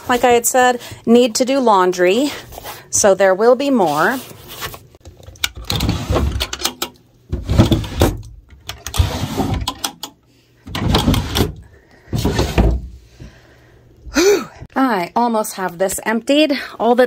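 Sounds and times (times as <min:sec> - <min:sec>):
wooden drawers sliding: 0:05.6 - 0:06.6, 0:07.3 - 0:09.9, 0:10.7 - 0:13.0.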